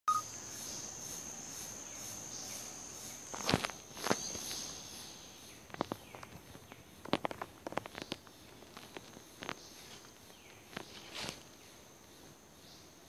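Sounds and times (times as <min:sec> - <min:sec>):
insect high-pitched whine: 0:00.1 - 0:06.0
insects pulsing chirr: 0:00.1 - 0:13.0
footsteps on dry leaves: 0:07.7 - 0:11.5.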